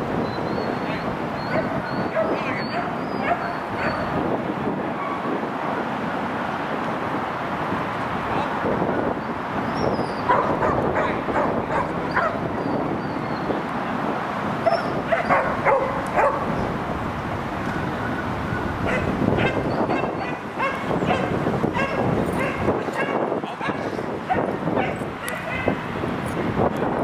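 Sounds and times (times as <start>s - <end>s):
dog barking and yipping: 1.4s - 4.1s, 5.0s - 5.3s, 10.2s - 12.4s, 14.6s - 16.6s, 18.8s - 25.8s.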